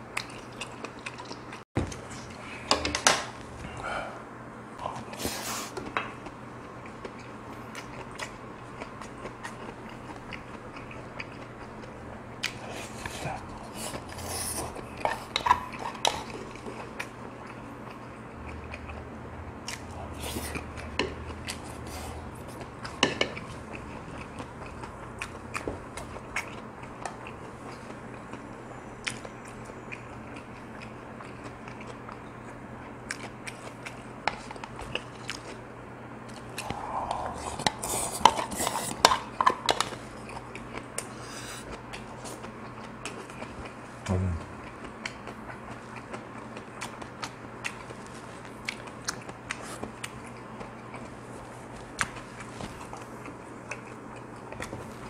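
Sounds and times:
chewing: 0.2s - 2.4s, 5.8s - 35.6s, 36.2s - 55.0s.

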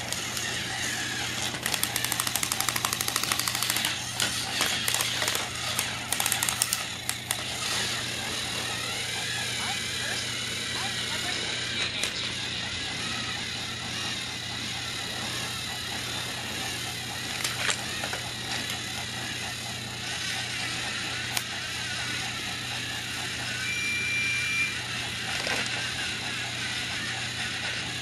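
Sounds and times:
toy electric motor whirring: 0.0s - 28.0s
sharp clicks: 1.4s - 7.5s.

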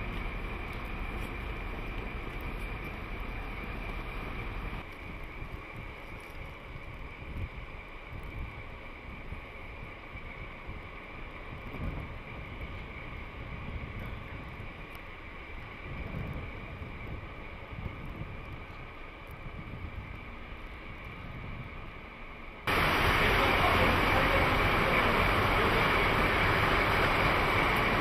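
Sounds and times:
diesel engines rumbling: 0.0s - 4.8s, 22.7s - 28.0s
wind buffeting microphone: 0.0s - 22.1s
faint high whine: 0.0s - 28.0s.

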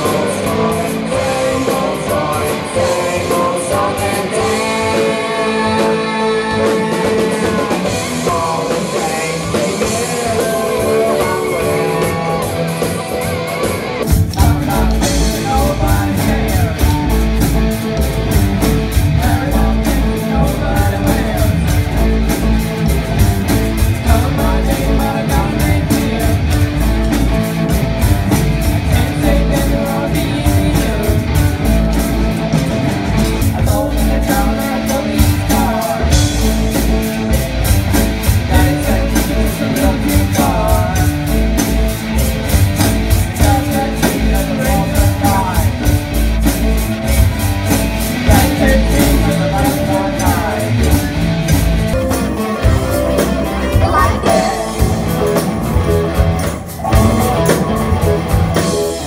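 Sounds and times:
people singing: 0.0s - 17.8s, 18.6s - 27.4s, 28.3s - 46.1s, 48.1s - 59.0s
drums: 0.0s - 59.0s
live rock band: 0.0s - 59.0s.

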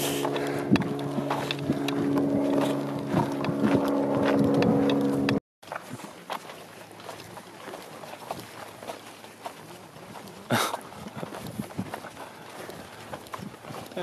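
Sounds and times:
engine drone: 0.0s - 5.4s.

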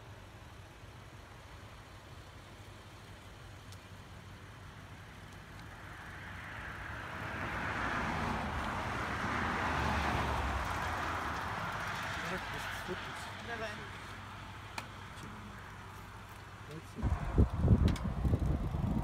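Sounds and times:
car passing on highway: 4.2s - 19.0s.

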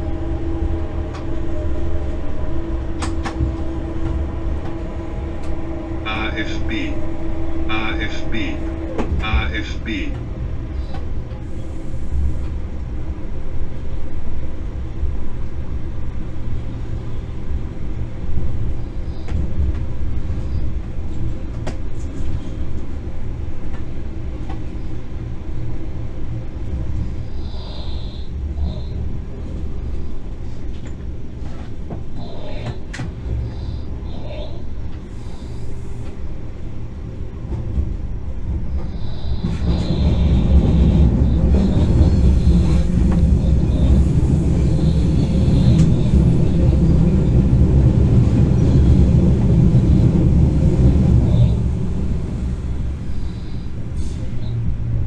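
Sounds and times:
steady electric hum: 0.0s - 21.2s
train wheels rumbling on rail: 0.0s - 55.0s.

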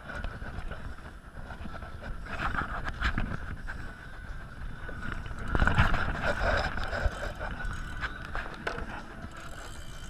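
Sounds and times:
fishing reel whirring: 0.0s - 10.0s
sharp reel clicks: 5.1s - 10.0s.

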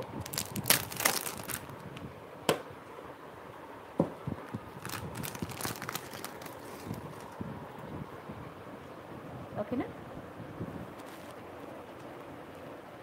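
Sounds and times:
plastic packet crinkling: 0.0s - 1.9s, 4.8s - 7.4s.

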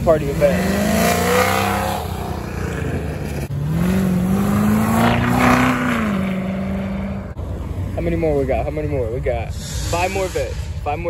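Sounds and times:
car engine accelerating hard: 0.0s - 7.8s.

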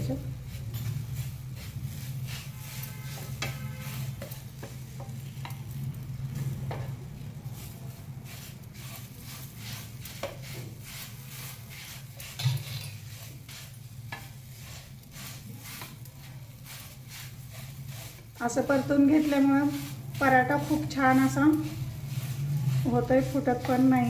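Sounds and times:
light sizzle of frying: 0.0s - 24.0s
wooden spatula scraping a pan: 0.0s - 24.0s.

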